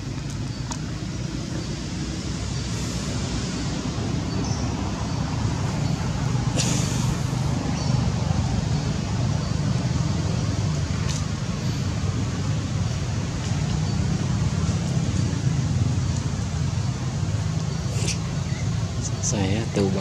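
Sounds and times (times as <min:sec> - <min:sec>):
low outdoor rumble: 0:00.0 - 0:20.0
brief hiss: 0:06.6 - 0:07.2.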